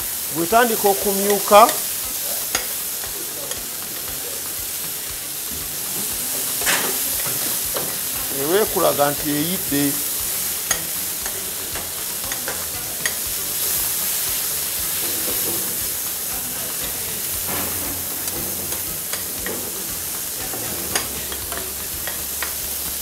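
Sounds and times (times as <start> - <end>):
chicken sizzling on a griddle: 0.0 - 23.0
metal spatula scraping steel: 5.6 - 22.6.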